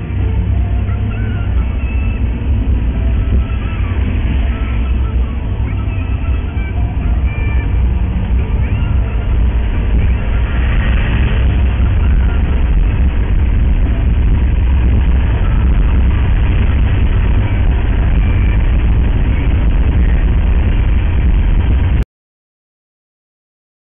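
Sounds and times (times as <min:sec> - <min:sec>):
tyre and engine rumble in car: 0:00.0 - 0:22.0.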